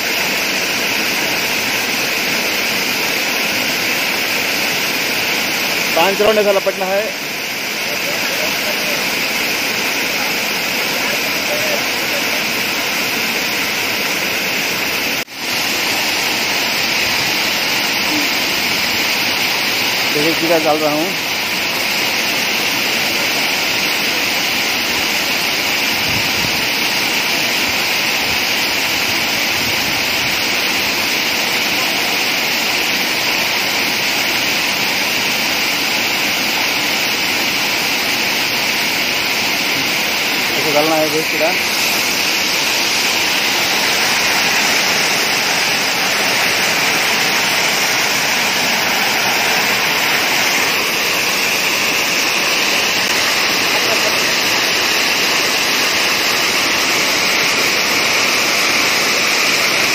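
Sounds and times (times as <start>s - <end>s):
water rushing down a weir: 0.0s - 59.9s.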